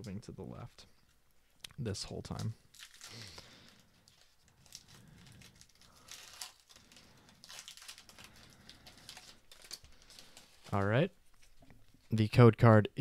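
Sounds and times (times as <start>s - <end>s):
foil wrapper crinkling: 2.3s - 11.6s.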